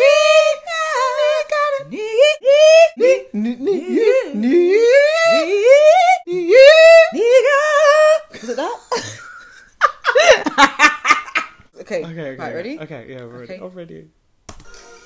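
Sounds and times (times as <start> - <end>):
people singing and humming wordlessly: 0.0 - 8.4.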